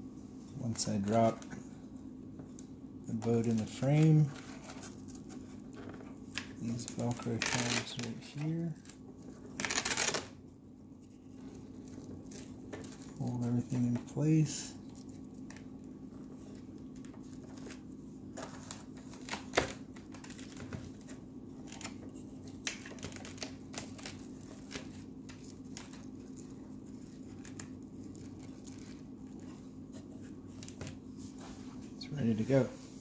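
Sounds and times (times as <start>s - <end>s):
faint steady hum: 0.0s - 33.0s
velcro straps rustling: 6.6s - 10.3s.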